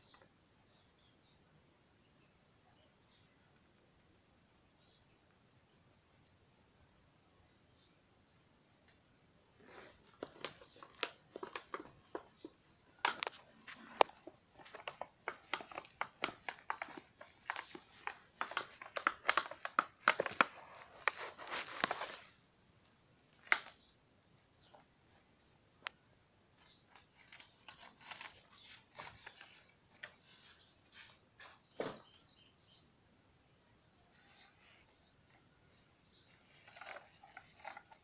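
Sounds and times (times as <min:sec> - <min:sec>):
bubble wrap crinkling: 0:09.6 - 0:22.4, 0:26.9 - 0:31.6, 0:34.1 - 0:38.0.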